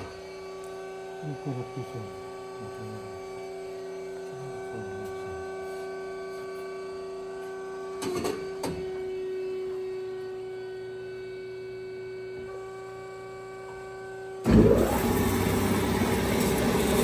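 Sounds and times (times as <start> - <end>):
band saw humming: 0.0 - 11.5.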